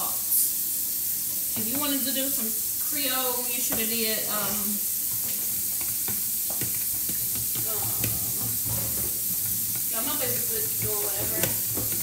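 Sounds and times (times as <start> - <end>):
fork beating eggs in plastic bowl: 3.6 - 12.0.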